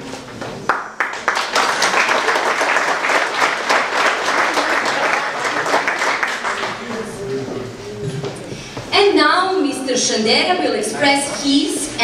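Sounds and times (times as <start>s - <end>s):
audience applauding: 0.6s - 7.5s.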